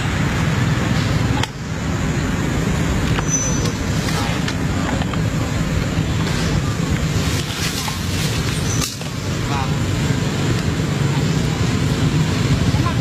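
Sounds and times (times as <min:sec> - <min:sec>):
low rumbling noise: 0:00.0 - 0:13.0.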